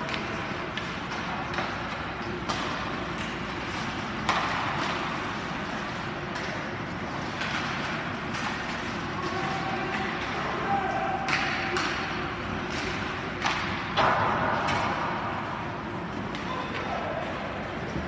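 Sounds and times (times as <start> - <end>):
sticks clacking on puck: 0.0 - 15.5, 16.1 - 18.0
skates scraping ice: 0.0 - 18.0.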